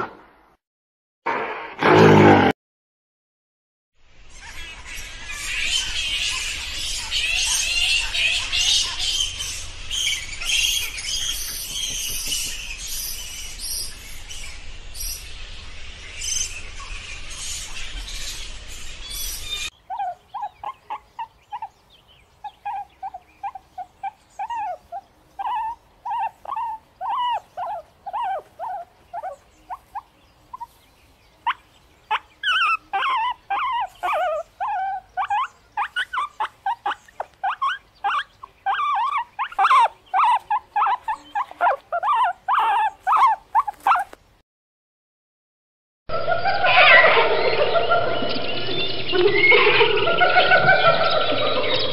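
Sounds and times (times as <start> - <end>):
piglets squealing: 19.6 - 21.7, 22.5 - 29.8, 32.1 - 44.2
flying foxes screeching: 32.1 - 44.0.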